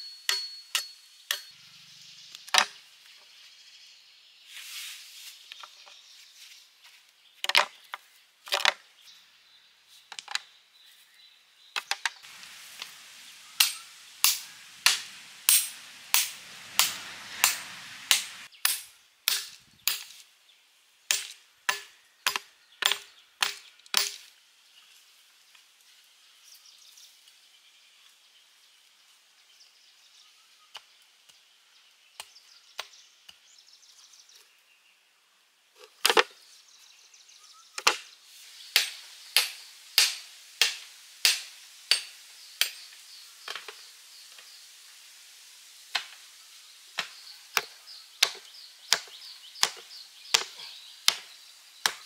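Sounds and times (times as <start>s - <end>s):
hand tool striking: 0.0s - 1.5s, 12.5s - 20.2s, 38.7s - 42.9s, 47.0s - 52.0s.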